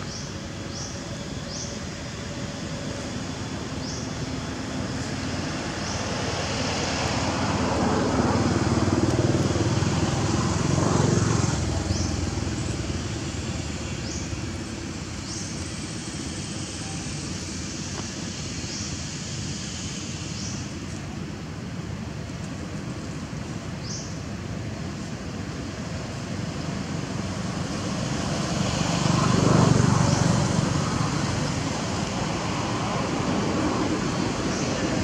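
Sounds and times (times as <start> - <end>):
motor vehicle passing: 5.2 - 14.5.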